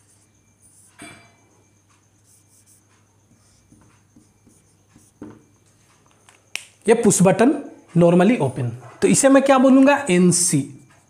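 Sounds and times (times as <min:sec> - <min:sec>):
marker scratching on whiteboard: 0:00.0 - 0:01.0, 0:02.2 - 0:05.4.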